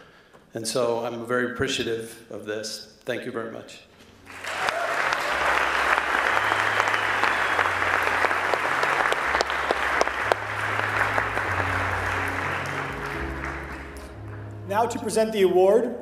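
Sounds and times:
audience applauding: 4.3 - 15.0.

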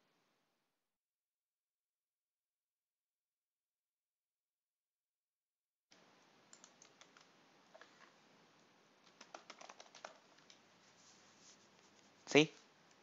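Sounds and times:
microphone hiss: 6.0 - 13.0
computer keyboard typing: 6.5 - 7.8, 9.0 - 10.6.

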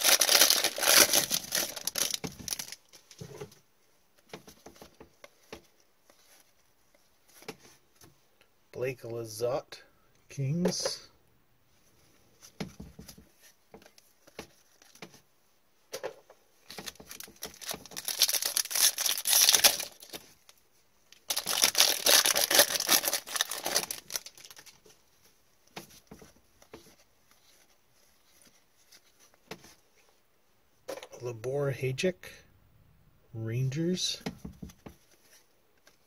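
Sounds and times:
foil wrappers tearing and crinkling: 0.0 - 2.9, 16.8 - 20.2, 21.3 - 24.8
cards rustling and clicking: 0.0 - 3.6, 12.4 - 15.2, 16.6 - 20.6, 21.2 - 25.0.

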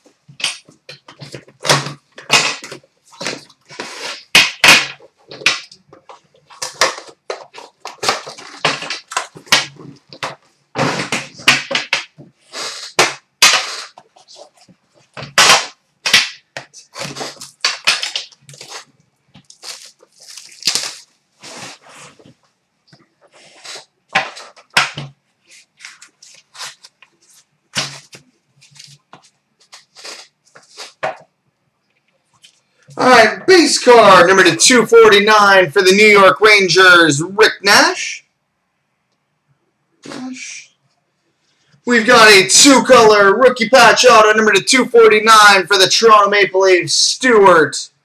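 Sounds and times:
packaging crinkling and tearing: 6.5 - 10.1, 16.8 - 22.2, 25.6 - 31.0.

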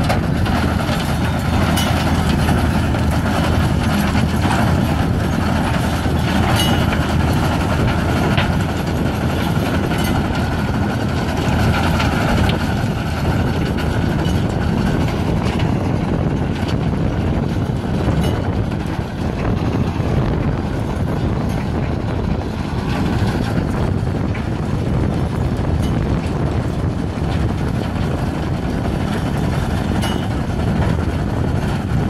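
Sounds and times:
machine rattle: 0.0 - 16.8
tractor engine running under load: 0.0 - 32.0.

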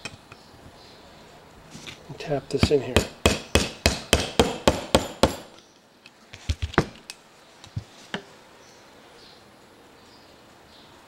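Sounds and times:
hammer tapping metal: 2.5 - 5.6.

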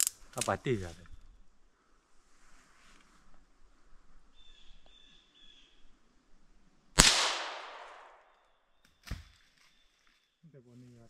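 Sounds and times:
gunshot crack with echo: 7.0 - 8.2
quieter crack: 7.0 - 8.4.

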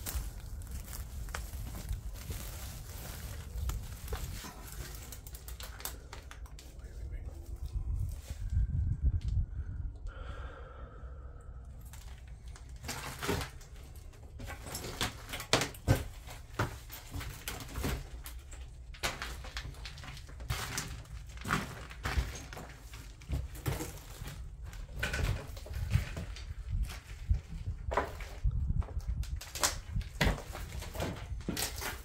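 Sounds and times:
steady low rumble: 0.0 - 12.8
footsteps and knocks: 12.6 - 29.0, 29.9 - 32.0.

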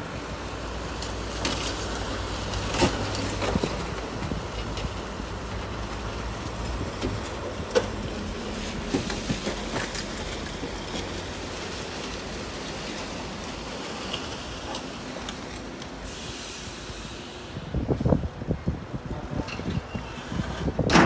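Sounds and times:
diesel machinery engine hum: 0.0 - 21.0
rushing hiss: 13.2 - 18.1.

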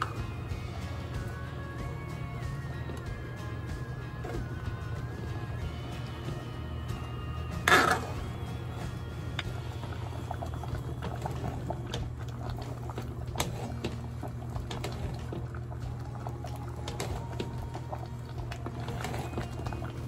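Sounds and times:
liquid sloshing and bubbling: 0.0 - 20.0
quiet background music: 0.0 - 20.0
steady low hum: 0.0 - 20.0.

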